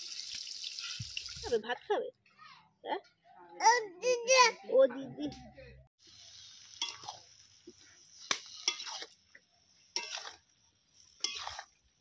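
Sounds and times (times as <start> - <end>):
greens sizzling: 0.0 - 1.6, 6.0 - 12.0
metal spatula scraping a metal pan: 6.8 - 7.2, 7.8 - 9.2, 9.9 - 11.9.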